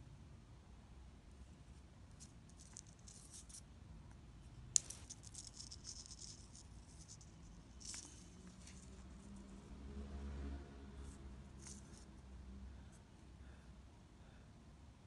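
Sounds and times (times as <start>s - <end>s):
fishing line rustling in fingers: 1.6s - 3.7s, 4.7s - 9.7s, 11.0s - 12.3s.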